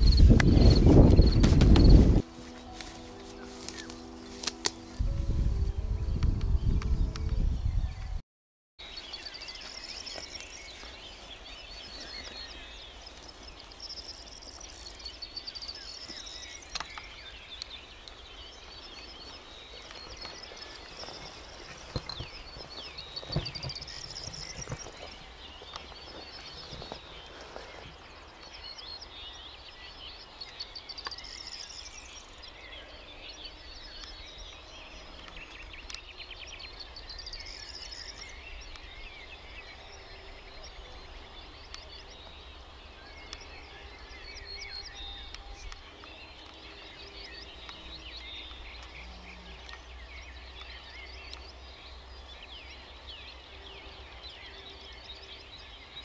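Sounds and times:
grass rustling: 0.0 - 6.6, 8.8 - 29.8
birds chirping and trilling: 0.0 - 8.2, 8.8 - 56.0
steady low rumble: 4.8 - 8.0.

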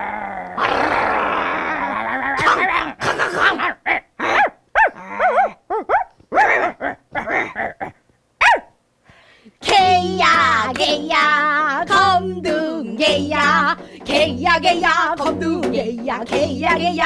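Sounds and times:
people growling like a dog: 0.0 - 3.0
people imitating yapping barks: 0.6 - 8.8.

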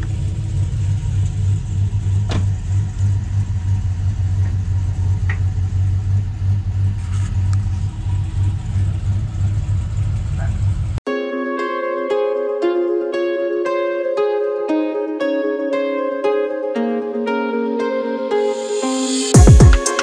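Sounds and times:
pickup engine idling: 0.0 - 11.0.

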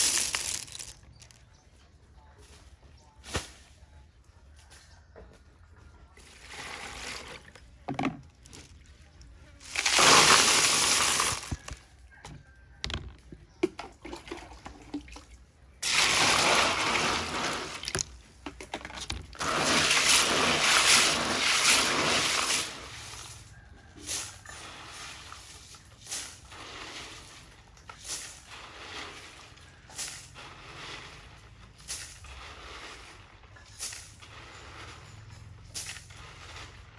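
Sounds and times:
water sloshing in basin: 13.6 - 23.4.

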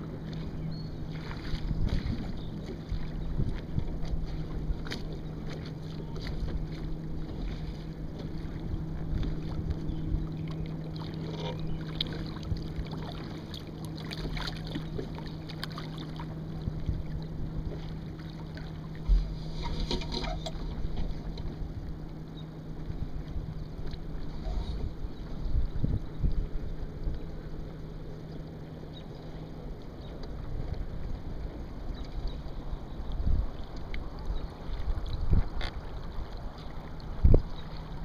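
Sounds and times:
wind buffeting microphone: 0.0 - 7.6, 22.8 - 27.5, 30.4 - 38.0
water rushing along hull: 0.0 - 38.0.

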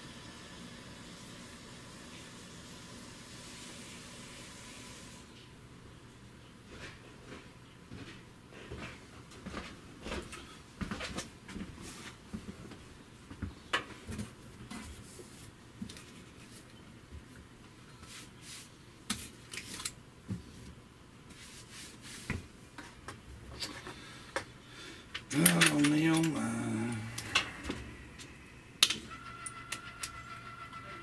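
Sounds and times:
faint low hum: 23.0 - 31.0
hands handling pipe fittings: 25.1 - 26.4.

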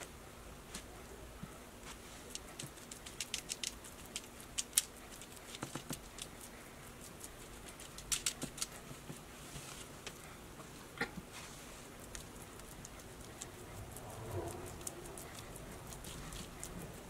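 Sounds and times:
brush and gloved hands crinkling foil: 1.8 - 10.2.

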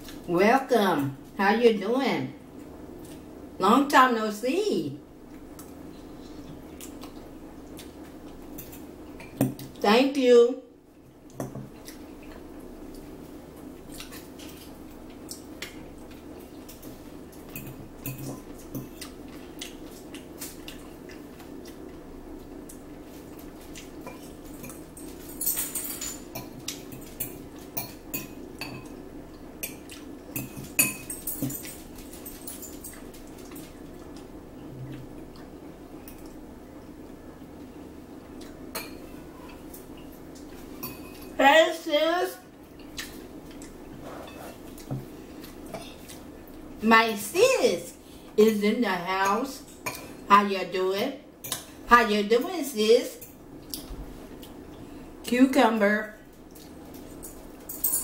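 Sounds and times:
steady low hum: 0.0 - 58.0
forks clinking against bowls: 24.1 - 29.0, 29.6 - 33.6, 40.8 - 41.4, 57.1 - 58.0.

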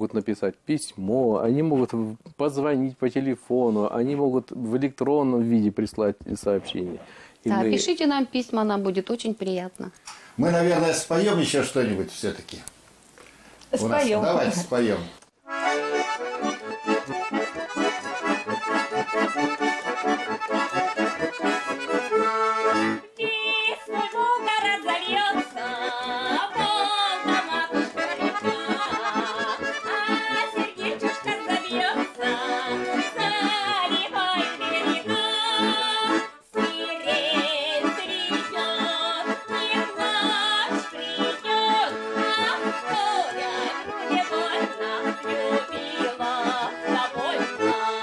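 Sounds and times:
accordions playing folk song: 1.5 - 5.6, 6.4 - 8.5, 10.4 - 11.7, 13.8 - 48.0
woman singing: 23.1 - 48.0.

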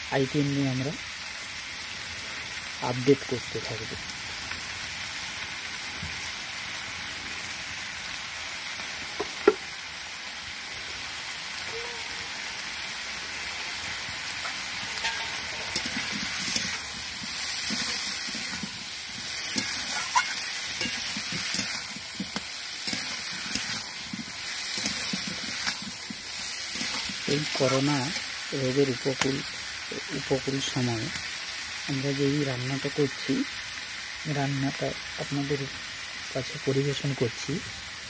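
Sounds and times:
vegetables sizzling in hot oil: 0.0 - 38.0
metal spatula scraping pan: 14.4 - 28.4.

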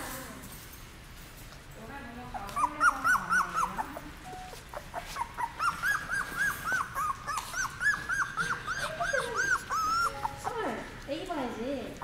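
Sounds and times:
puppy crying in high squeaks: 2.4 - 10.7.

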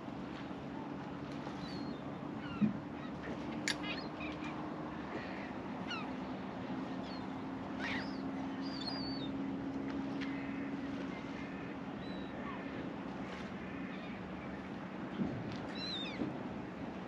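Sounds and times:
seabirds squealing and chirping: 1.6 - 6.3, 6.9 - 9.4.

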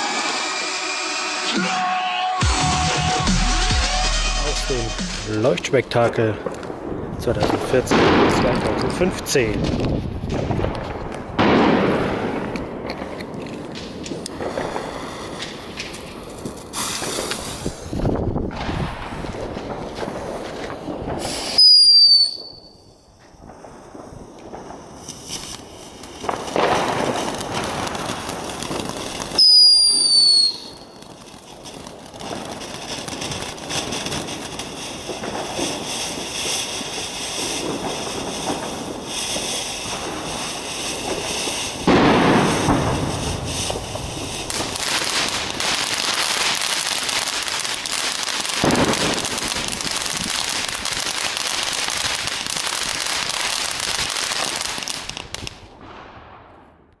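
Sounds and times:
firework whistle: 0.0 - 5.4, 21.2 - 23.0, 29.2 - 31.2
firework hissing and crackling: 0.0 - 56.2.

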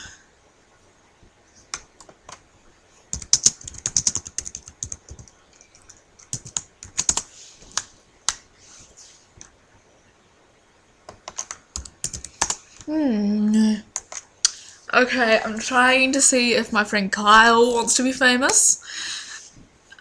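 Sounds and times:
typing on computer keyboard: 3.1 - 8.4, 11.1 - 12.9, 14.0 - 14.2.

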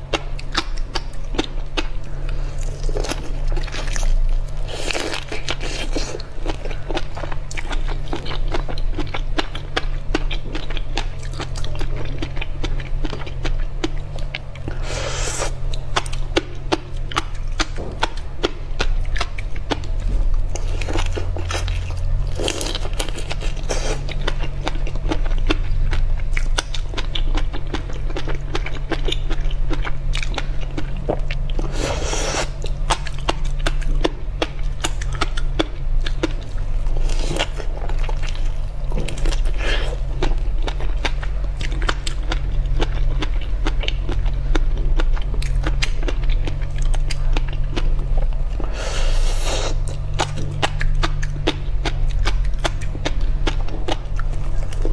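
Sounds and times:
chewing: 0.0 - 54.9
steady low hum: 0.0 - 54.9.

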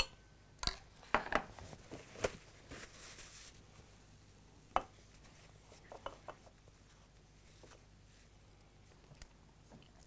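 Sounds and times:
metal spoon clinking against saucepan: 0.0 - 0.8.

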